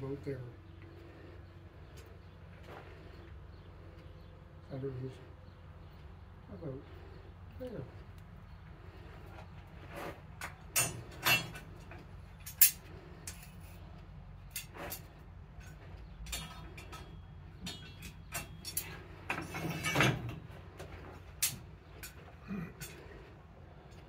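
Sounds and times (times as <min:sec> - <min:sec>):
metal tongs clinking and rattling: 0:10.7 - 0:13.7, 0:15.6 - 0:20.4.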